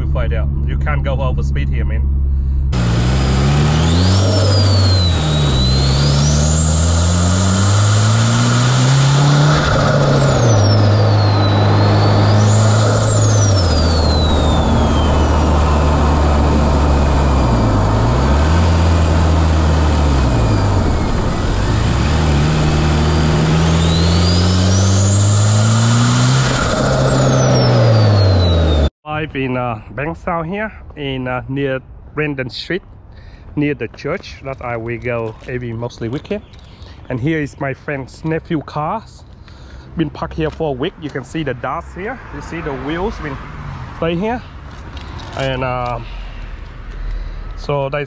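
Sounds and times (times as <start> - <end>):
car engine accelerating: 0.0 - 28.9
high turbo whistle: 2.3 - 28.9.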